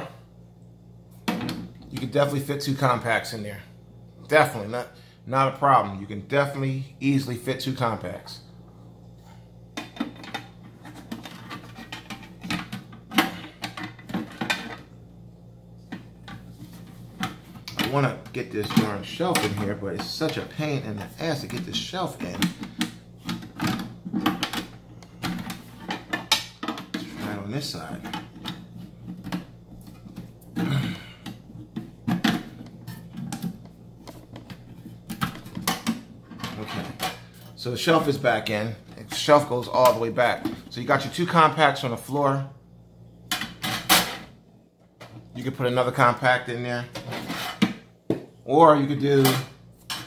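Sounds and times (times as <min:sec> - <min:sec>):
metal clanks and scrapes: 0:09.8 - 0:14.8, 0:46.9 - 0:47.7
shelf scraping in metal safe: 0:47.0 - 0:47.6.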